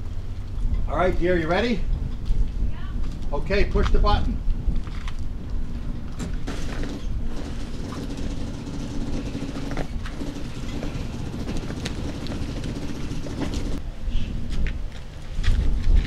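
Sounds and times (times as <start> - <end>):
electric winch motor hum: 6.4 - 13.8.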